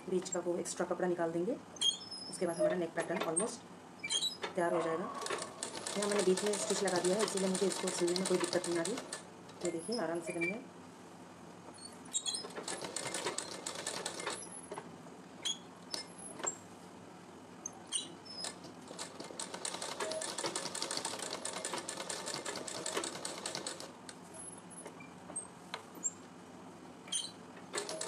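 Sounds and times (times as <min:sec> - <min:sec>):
sewing machine stitching: 0:05.2 - 0:09.8, 0:12.2 - 0:14.6, 0:18.3 - 0:23.9, 0:27.7 - 0:28.0.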